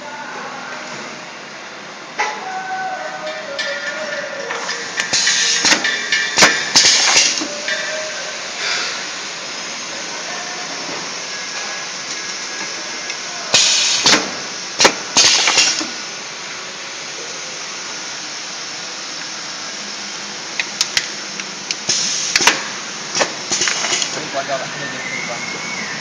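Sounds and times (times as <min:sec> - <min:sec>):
steady background hiss: 0:00.0 - 0:26.0
cup sealing machine running: 0:02.2 - 0:16.2, 0:20.5 - 0:26.0
loud hissing bursts: 0:12.8 - 0:18.4, 0:21.8 - 0:26.0.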